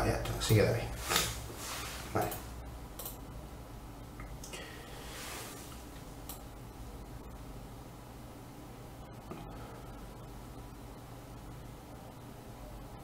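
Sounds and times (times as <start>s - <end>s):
low steady hum: 0.0s - 13.0s
soft rush of noise: 0.1s - 13.0s
computer mouse clicks: 3.0s - 3.2s.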